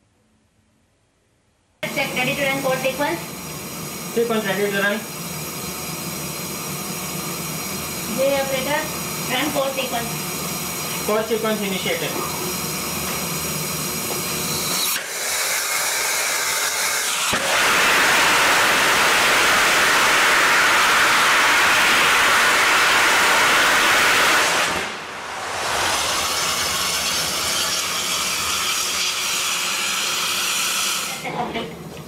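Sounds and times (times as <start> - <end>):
rocket engine hissing: 1.8 - 31.3
rocket engine roaring rush: 18.0 - 29.3.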